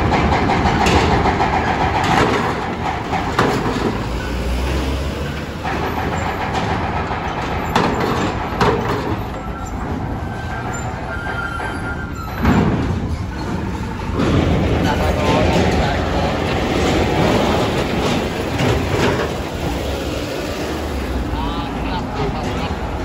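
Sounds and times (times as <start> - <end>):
vehicle engines running: 0.0 - 23.0
wheels clanking on steel ramp: 0.0 - 23.0.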